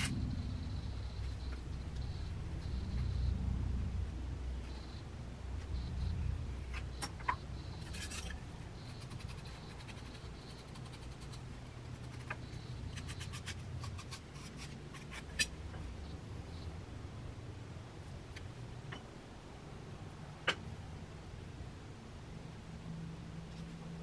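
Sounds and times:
steady low hum: 0.0 - 24.0
tool scraping clay: 7.8 - 15.6.

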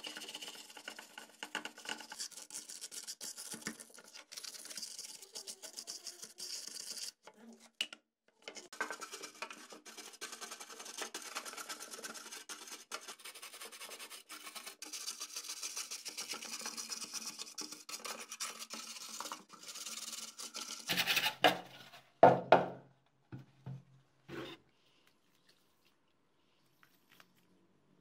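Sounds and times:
wire brush scrubbing plastic: 0.0 - 7.2, 8.5 - 21.9.

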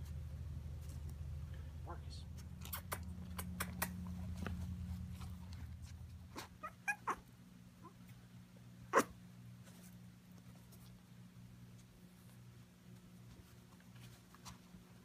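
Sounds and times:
puppies yipping and squeaking: 6.3 - 8.0, 8.9 - 9.2
puppy yelp: 6.3 - 8.0, 8.9 - 9.2.

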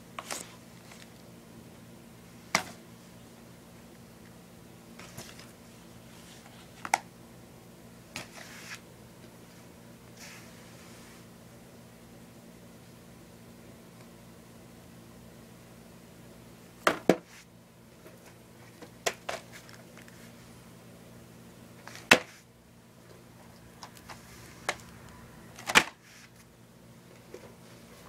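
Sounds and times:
faint low hum: 17.6 - 28.0.

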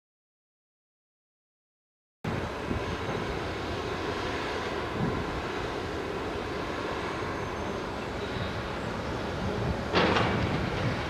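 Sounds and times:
low outdoor rumble: 2.3 - 11.0.

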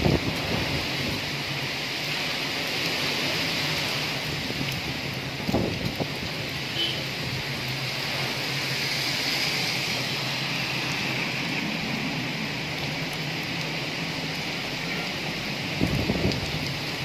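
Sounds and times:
strong wind: 0.0 - 1.8, 4.1 - 13.7, 14.6 - 17.0
heavy rain pouring: 0.0 - 17.0.

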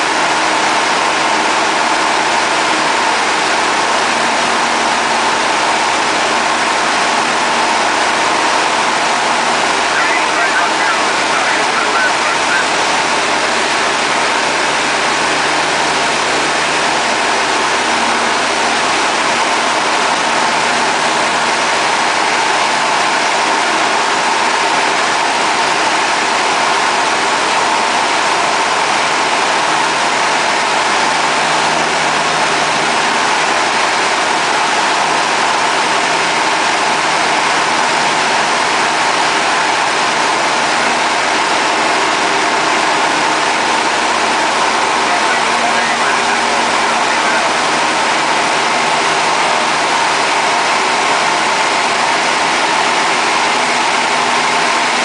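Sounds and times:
light aircraft engine drone: 0.0 - 55.0.

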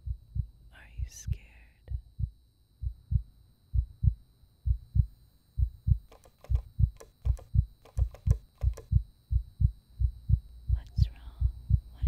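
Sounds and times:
heartbeat thumps: 0.0 - 12.0
faint sharp clicks: 6.1 - 8.9.

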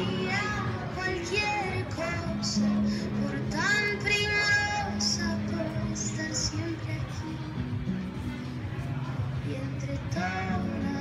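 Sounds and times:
steady backing music: 0.0 - 11.0
person singing: 9.4 - 11.0.

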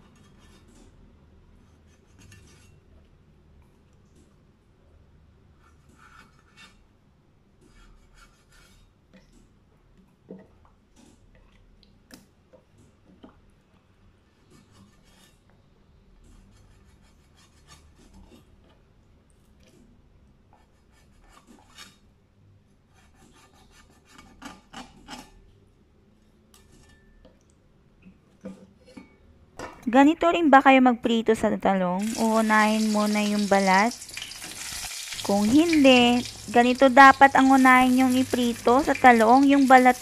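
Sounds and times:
cleaver scraping and cutting fish: 14.4 - 15.5, 16.2 - 18.6, 20.6 - 22.0, 22.9 - 25.4.

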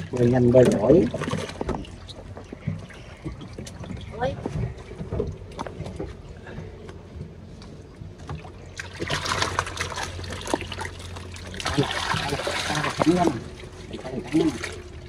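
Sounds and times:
water pouring and splashing: 0.0 - 2.0, 8.3 - 15.0
low steady hum: 0.0 - 15.0.

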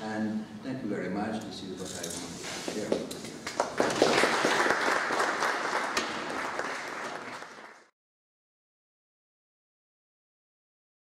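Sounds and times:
audience applauding: 3.4 - 7.9.

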